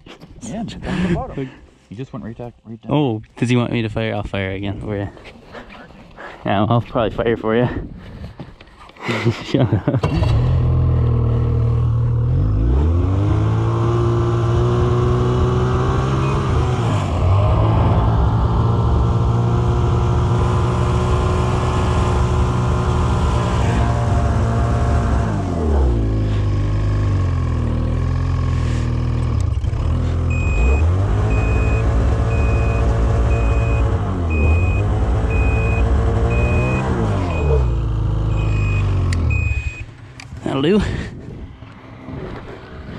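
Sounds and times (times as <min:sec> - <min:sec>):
snowmobile engine revving: 0:09.9 - 0:39.8
repeating beep: 0:16.2 - 0:16.6, 0:30.3 - 0:37.7, 0:38.3 - 0:39.8.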